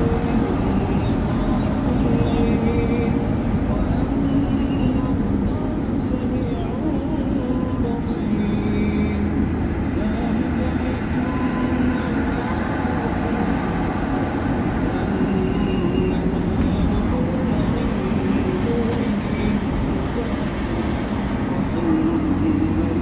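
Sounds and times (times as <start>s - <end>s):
car road and engine rumble: 0.0s - 23.0s.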